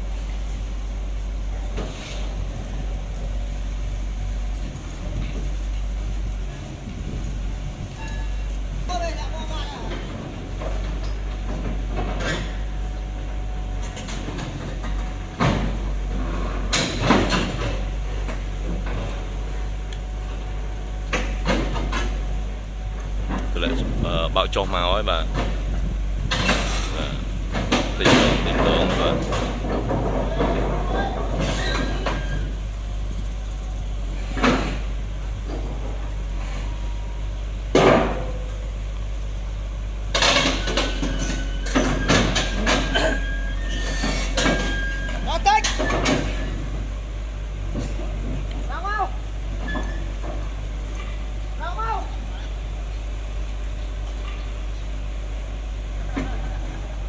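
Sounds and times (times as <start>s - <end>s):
excavator engine running: 0.0s - 57.0s
heavy metal ramp clanks: 26.2s - 32.6s.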